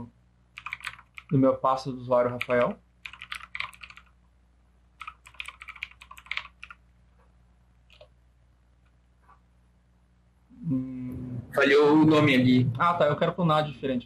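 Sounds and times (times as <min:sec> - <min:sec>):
computer keyboard typing: 0:00.6 - 0:01.4, 0:02.3 - 0:04.2, 0:05.0 - 0:06.8, 0:07.8 - 0:08.1.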